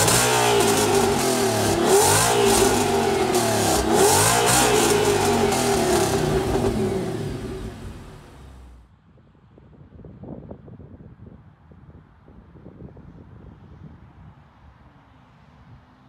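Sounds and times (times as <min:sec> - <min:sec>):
car engine revving: 0:00.0 - 0:08.8.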